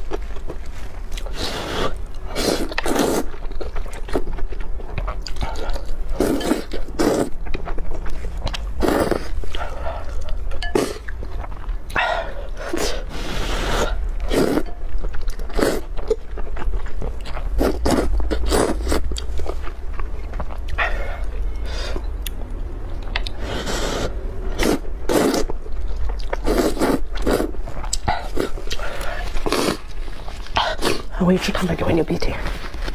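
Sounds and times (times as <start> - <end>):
wet chewing: 0.0 - 31.2
noodles being slurped: 1.2 - 3.4, 23.6 - 25.5, 26.4 - 31.1.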